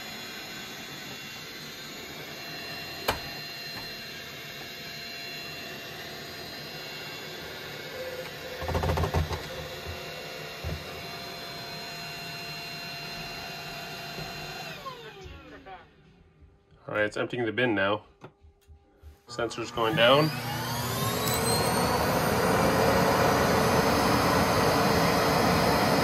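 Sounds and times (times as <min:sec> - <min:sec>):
robot vacuum fan whine: 0:00.0 - 0:16.1, 0:19.3 - 0:26.0.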